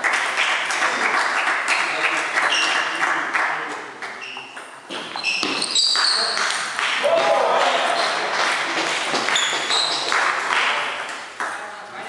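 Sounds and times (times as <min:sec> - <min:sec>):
table tennis balls pinging: 0:04.1 - 0:07.0.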